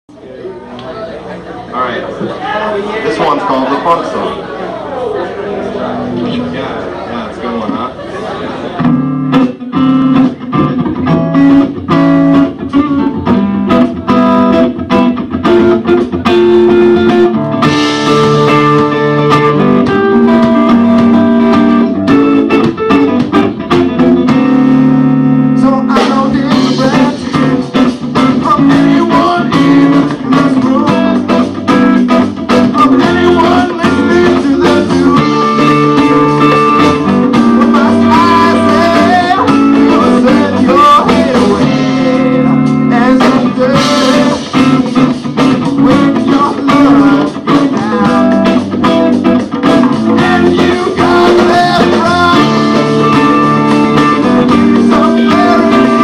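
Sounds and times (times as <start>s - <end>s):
live funk band playing: 0.6s - 56.0s.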